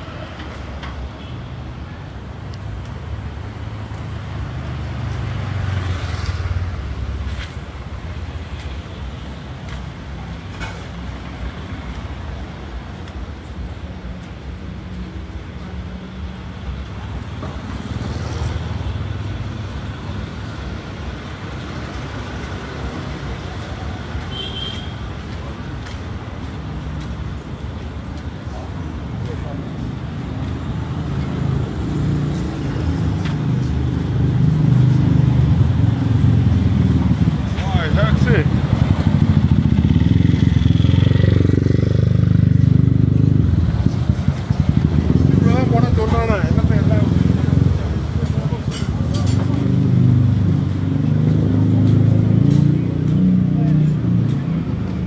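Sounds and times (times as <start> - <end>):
cars passing on busy road: 0.0 - 55.0
motorbikes passing: 3.0 - 55.0
motor scooter engine passing: 35.3 - 48.0.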